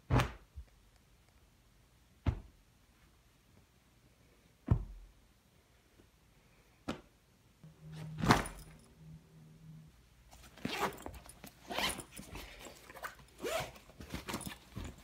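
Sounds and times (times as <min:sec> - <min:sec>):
backpack zipper being pulled: 0:10.6 - 0:14.5.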